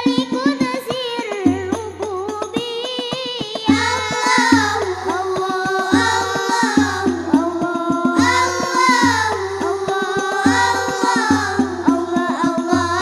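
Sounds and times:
frame drums: 0:00.0 - 0:13.0
children singing: 0:03.6 - 0:13.0.

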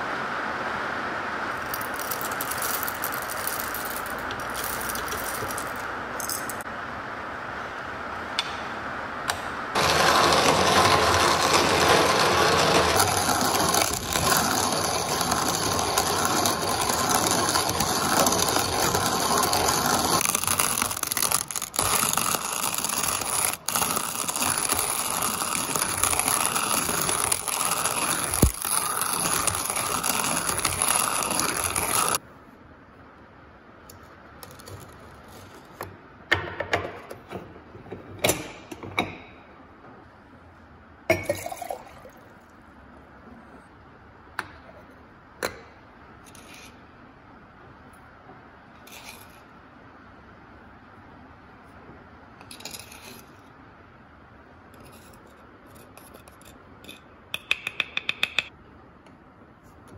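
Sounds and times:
coffee grinder grinding beans: 0:01.6 - 0:05.9, 0:09.8 - 0:32.2.

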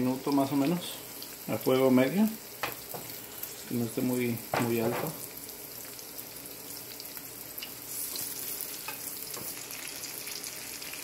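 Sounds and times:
fish fillets sizzling in oil: 0:00.0 - 0:11.0.

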